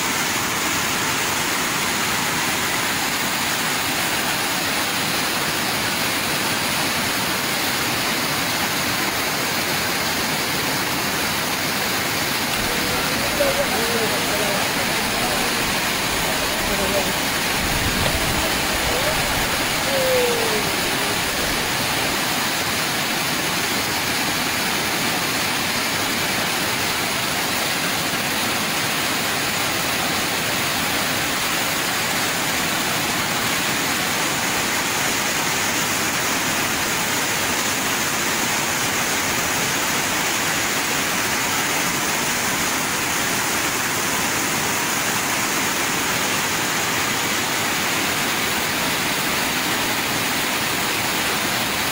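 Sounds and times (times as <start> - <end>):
floodwater rushing: 0.0 - 51.9
people's voices: 12.5 - 22.2
short falling shout: 12.6 - 21.8.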